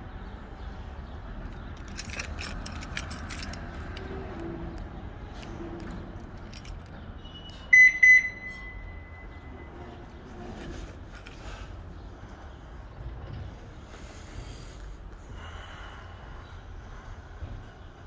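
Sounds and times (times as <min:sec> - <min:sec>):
keys jingling: 0:01.4 - 0:04.2, 0:06.2 - 0:07.1, 0:10.4 - 0:11.6
loud electronic beeps: 0:07.7 - 0:09.5.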